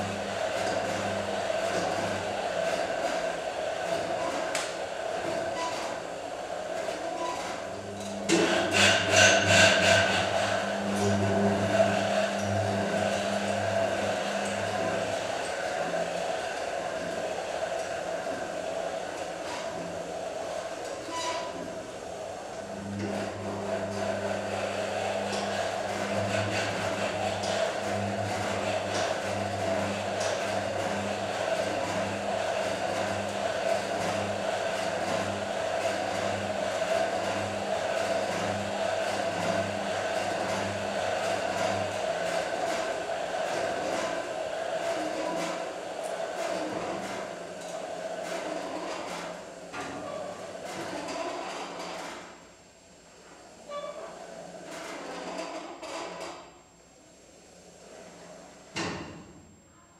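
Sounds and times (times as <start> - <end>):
motor humming and whirring: 0.0 - 21.8.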